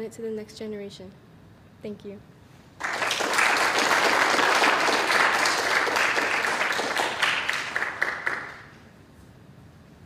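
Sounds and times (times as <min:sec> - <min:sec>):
audience applauding: 0:02.8 - 0:08.8.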